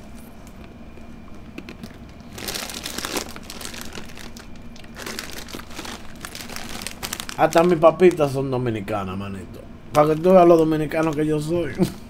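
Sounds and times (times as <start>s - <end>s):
chip bag crinkling and rustling: 1.5s - 8.4s, 9.9s - 11.9s.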